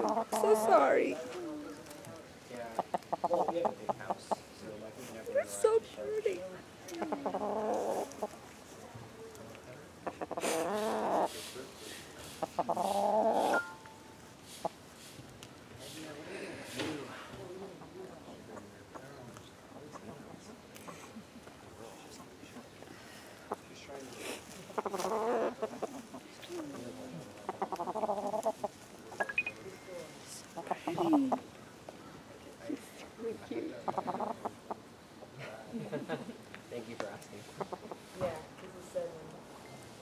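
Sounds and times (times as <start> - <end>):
hen clucking: 0.0 - 1.0, 2.7 - 4.6, 7.0 - 8.4, 10.0 - 11.4, 12.3 - 14.8, 24.6 - 29.5, 33.8 - 34.9, 37.6 - 38.1.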